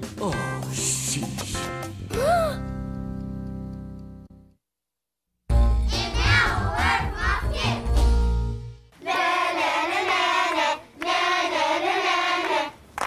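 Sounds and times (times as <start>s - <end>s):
music: 0.0s - 4.6s, 5.5s - 10.3s
children singing: 9.0s - 12.8s.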